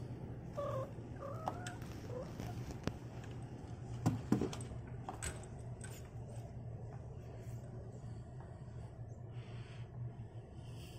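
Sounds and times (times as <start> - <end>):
cat chirping: 0.5 - 2.6.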